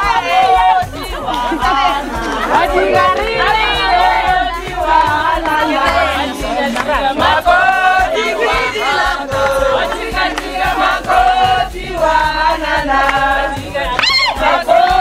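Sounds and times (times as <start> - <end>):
crowd voices: 0.0 - 9.2
women singing and chanting: 0.0 - 15.0.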